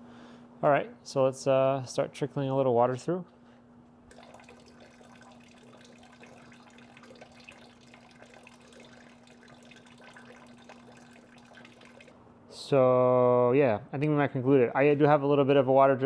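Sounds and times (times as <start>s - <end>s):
steady hum: 3.1s - 12.9s
water trickling into bucket: 4.1s - 12.2s.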